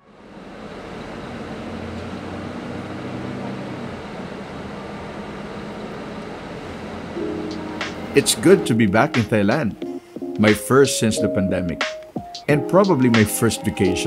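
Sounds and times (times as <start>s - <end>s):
bus engine hum and rumble: 0.0s - 8.5s.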